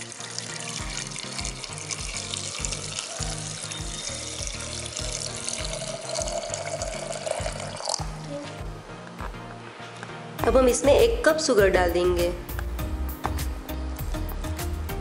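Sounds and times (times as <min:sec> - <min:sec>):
water pouring into glass jar: 0:00.0 - 0:08.1
background music: 0:00.0 - 0:15.0.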